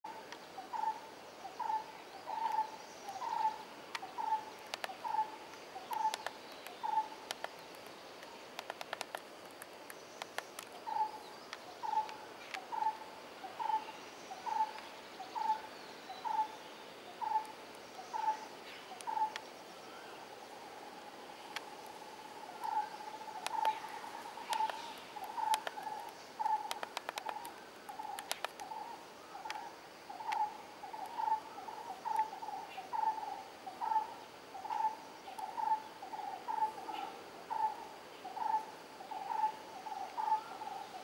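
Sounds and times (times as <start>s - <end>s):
faint clicks: 2.3s - 13.0s, 19.0s - 19.5s, 21.4s - 22.0s, 22.6s - 31.3s.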